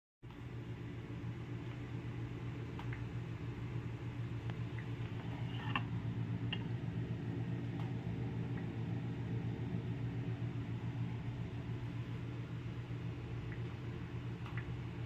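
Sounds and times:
low mechanical hum: 0.2 - 15.0
faint clicks and taps: 2.7 - 3.1, 14.4 - 14.7.

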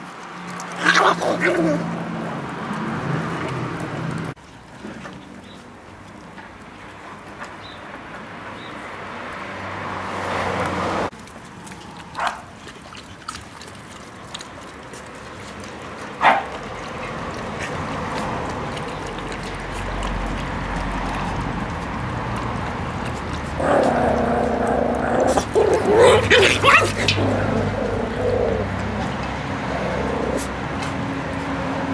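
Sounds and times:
puppies growling: 0.0 - 5.0, 8.0 - 31.9
puppy yelps: 25.3 - 28.8.

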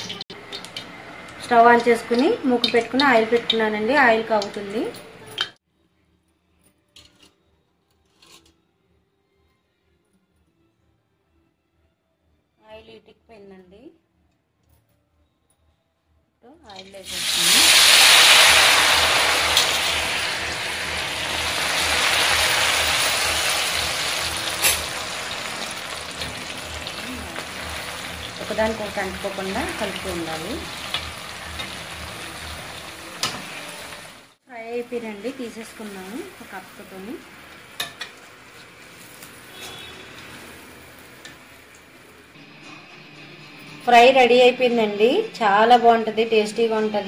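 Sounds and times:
food deep-frying in hot oil: 0.0 - 5.6, 16.7 - 42.2
metal spatula scraping pan: 39.0 - 40.7.

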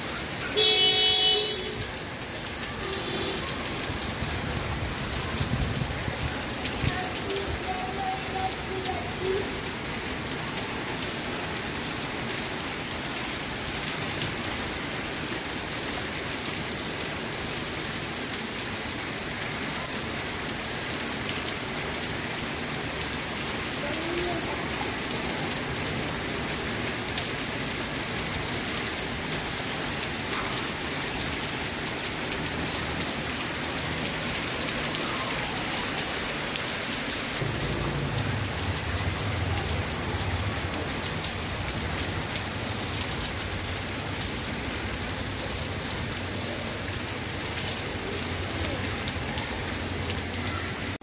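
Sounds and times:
heavy rain pouring: 0.0 - 51.0
raindrops ticking on surfaces: 0.0 - 51.0.

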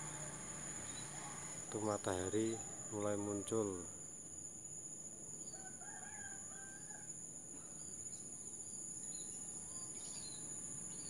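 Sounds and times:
insect chirring: 0.0 - 11.0.

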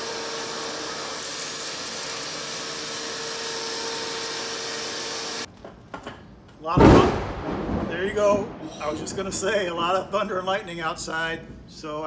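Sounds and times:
shop vacuum running: 0.0 - 5.5.

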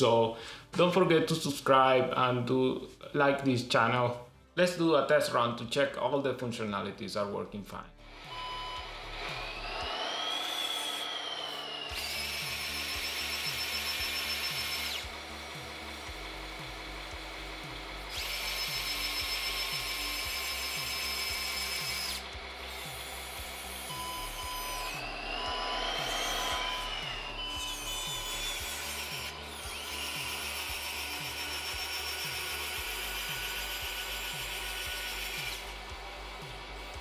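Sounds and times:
electric actuators whirring: 8.0 - 37.0
motor whine: 8.0 - 37.0
background music with steady beat: 11.9 - 37.0.

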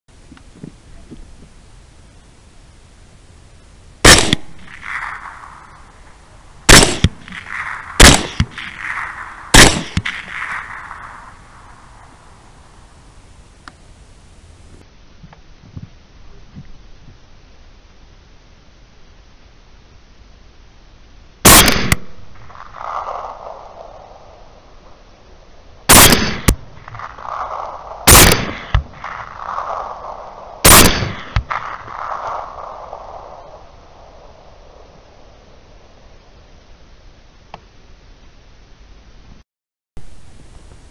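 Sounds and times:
rifle shots with echo: 4.0 - 12.4, 21.4 - 25.0, 25.9 - 35.0
sharp crack: 4.0 - 12.8, 21.4 - 36.1.

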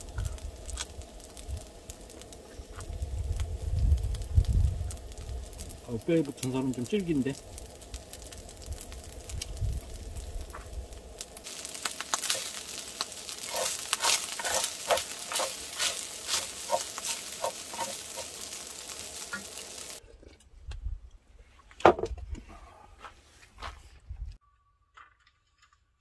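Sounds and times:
rice sizzling in a frying pan: 0.0 - 20.0
wooden spatula scraping a pan: 11.6 - 18.6.

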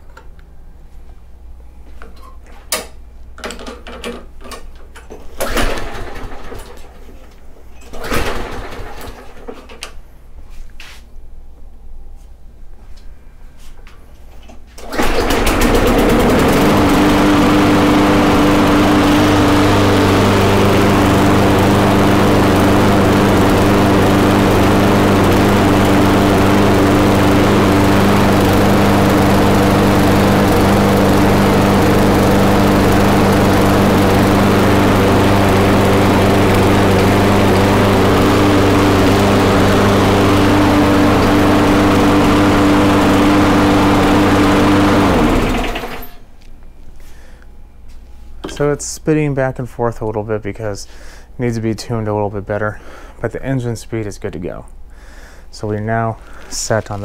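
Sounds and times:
lawn mower engine running: 5.4 - 7.0, 7.9 - 9.5, 14.8 - 46.3.

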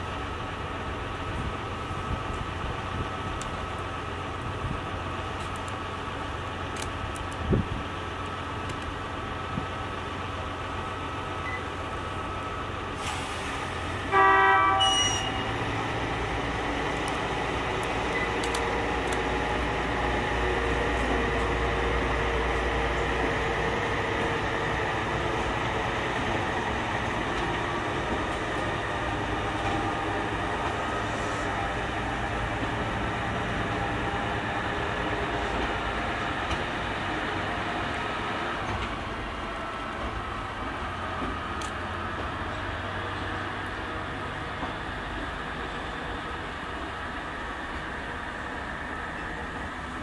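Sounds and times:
locomotive engine rumble: 0.0 - 50.0
train cars rolling: 0.0 - 50.0
locomotive horn blast: 14.1 - 15.6.

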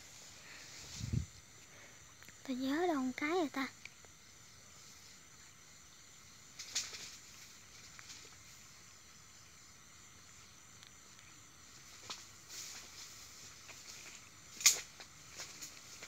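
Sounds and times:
high-pitched insect drone: 0.0 - 16.0
small tick: 3.8 - 4.1, 10.8 - 11.3.

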